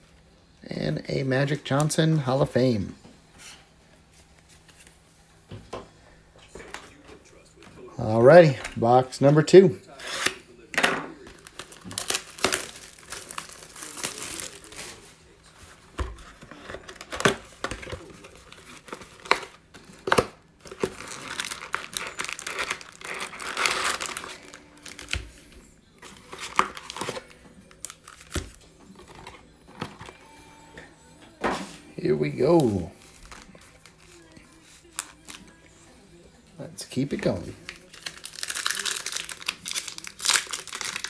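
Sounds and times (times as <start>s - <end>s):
shrink-wrap tearing and crinkling: 11.2s - 15.1s, 16.4s - 25.3s, 26.0s - 29.4s, 32.4s - 35.4s, 37.2s - 41.0s
foil packs rustling: 11.2s - 25.3s, 26.0s - 30.2s, 32.0s - 35.4s, 37.0s - 41.0s.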